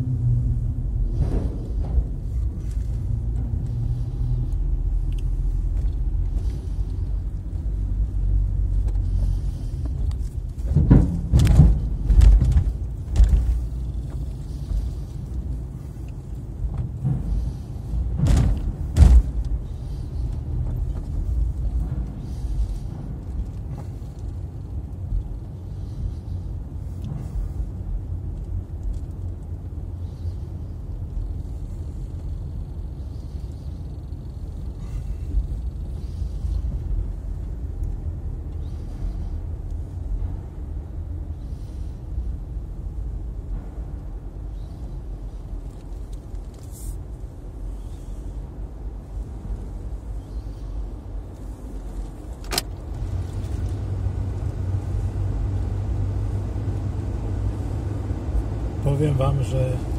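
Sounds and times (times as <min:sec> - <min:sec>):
car cabin rumble: 0:00.0 - 0:59.9
wheels thumping over steel joints: 0:10.2 - 0:14.3.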